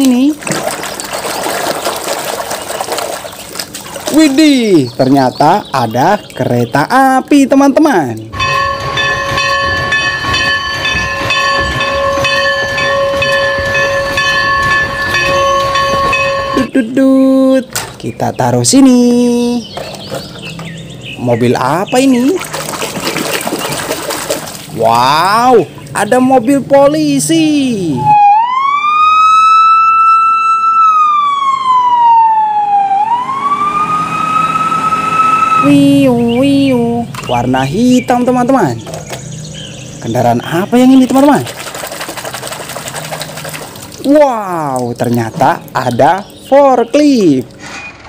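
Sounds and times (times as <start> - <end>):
locomotive bell ringing: 8.3 - 16.8
police siren wailing: 8.4 - 16.8, 27.9 - 36.3
engine rumble: 32.8 - 46.5.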